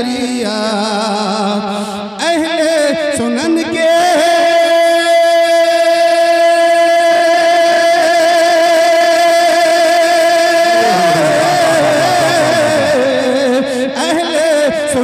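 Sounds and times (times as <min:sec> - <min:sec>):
man singing a long note: 0:10.7 - 0:13.4.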